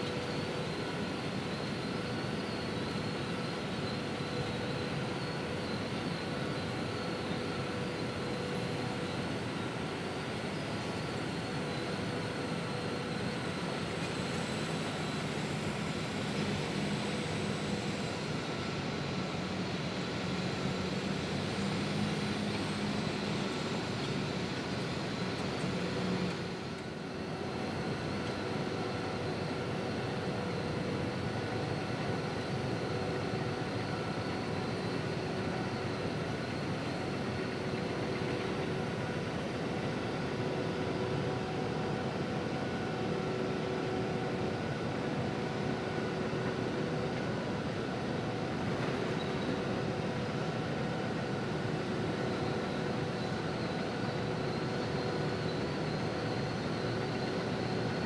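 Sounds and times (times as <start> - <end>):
machinery hum: 0.0 - 58.0.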